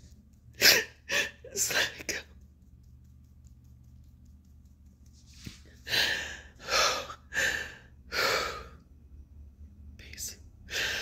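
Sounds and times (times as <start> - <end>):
woman crying with gasping breaths: 0.6 - 1.6.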